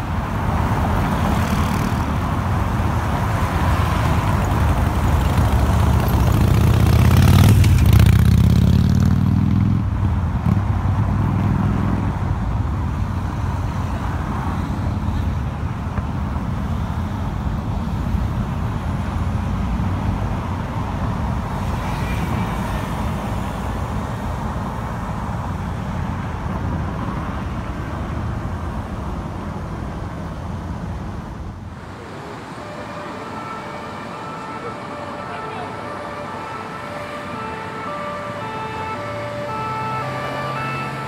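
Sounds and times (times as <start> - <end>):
city traffic rumble: 0.0 - 41.0
faint emergency siren: 31.8 - 41.0.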